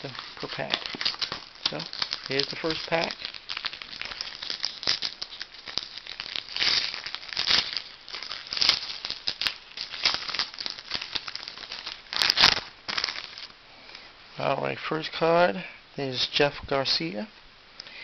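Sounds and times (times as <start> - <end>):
foil wrapper crinkling and tearing: 0.0 - 13.6.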